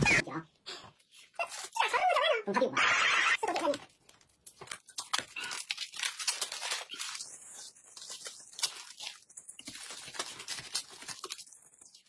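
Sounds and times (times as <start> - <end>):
plastic packaging crinkling: 3.4 - 12.0.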